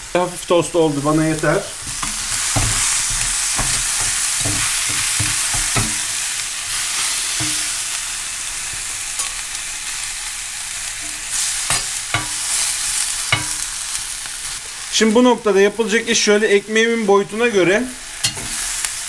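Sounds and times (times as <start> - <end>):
beef sizzling in a pan: 0.0 - 19.0
metal spatula scraping a pan: 1.7 - 8.0, 10.8 - 13.8, 18.2 - 18.8.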